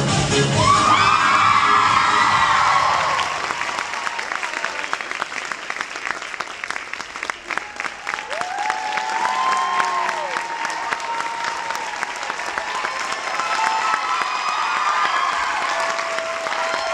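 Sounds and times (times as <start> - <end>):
audience clapping: 1.4 - 16.9
long held crowd calls: 7.3 - 16.9.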